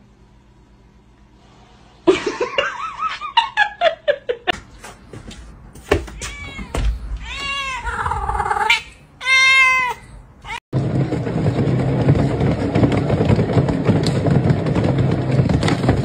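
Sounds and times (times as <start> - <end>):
cats meowing: 5.9 - 10.6.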